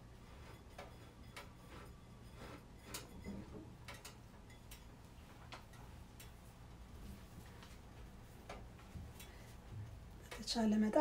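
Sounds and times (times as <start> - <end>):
metal spoon scraping a bowl: 0.0 - 5.0.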